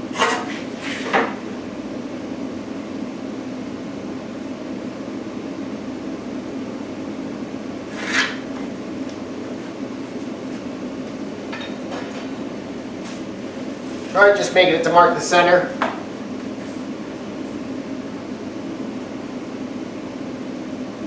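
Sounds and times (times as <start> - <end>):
steady mechanical hum: 0.0 - 21.0
scrape on plywood: 7.9 - 8.4.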